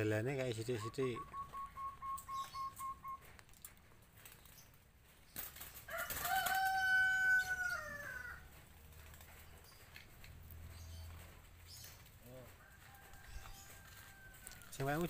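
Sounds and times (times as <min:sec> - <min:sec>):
rooster crowing: 0:05.9 - 0:08.6, 0:12.4 - 0:14.8.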